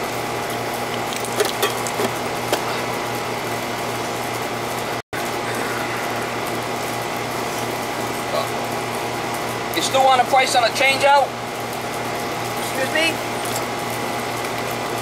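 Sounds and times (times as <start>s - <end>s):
air conditioner unit humming: 0.0s - 15.0s.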